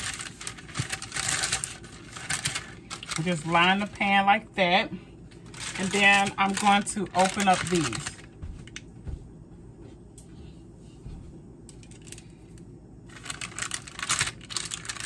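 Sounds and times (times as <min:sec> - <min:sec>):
plastic pouch crinkling: 0:00.0 - 0:04.0, 0:05.3 - 0:08.3, 0:13.1 - 0:15.0.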